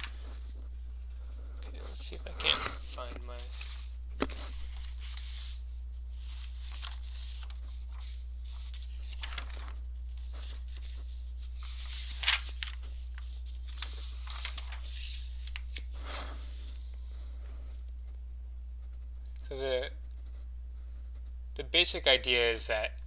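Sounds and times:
paper rustling and scratching: 0.0 - 17.9
steady low hum: 0.0 - 23.0.

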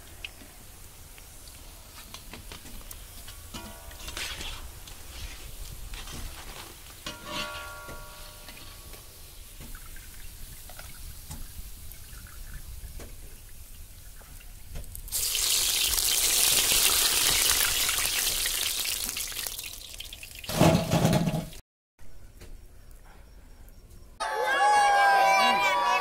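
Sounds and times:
oil crackling quietly: 0.0 - 7.1, 8.5 - 20.6
batter sizzling in hot oil: 8.5 - 21.4.

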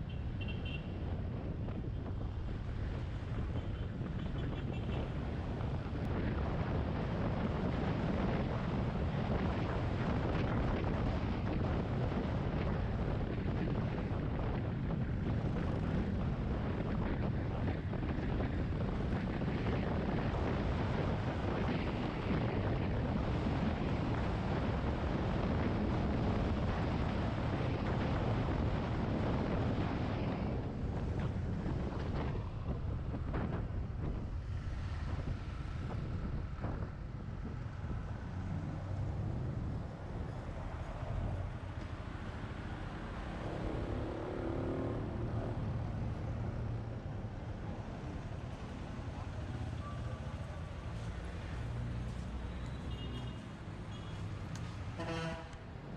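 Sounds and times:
wind rumble on microphone: 0.0 - 55.9.

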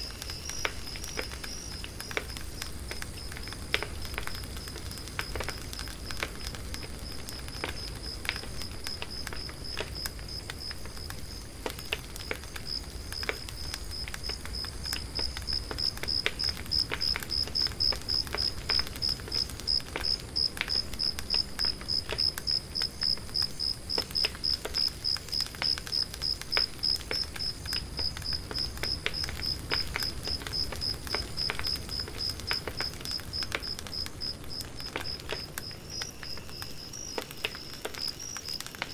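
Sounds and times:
cricket chirping: 0.0 - 3.6, 12.1 - 38.9
wood fire crackling: 0.0 - 38.9.

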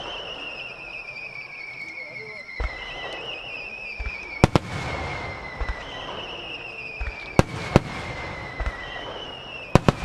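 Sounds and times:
crackling hiss: 0.0 - 10.0
descending firework whistle: 0.0 - 10.0
firework launch thumps: 7.0 - 10.0.

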